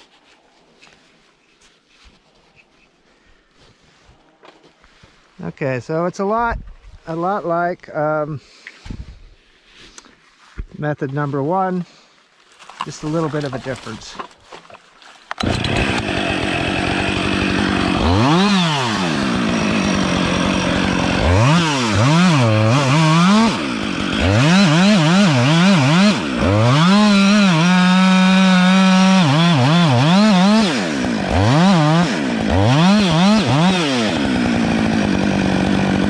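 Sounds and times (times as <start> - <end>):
chainsaw revving and cutting wood: 15.3 - 36.0.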